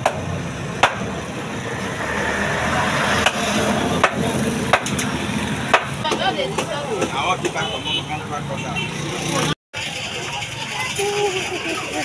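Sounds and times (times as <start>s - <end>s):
cleaver chopping meat on wood: 0.8s - 1.1s, 3.2s - 5.1s, 5.7s - 7.6s.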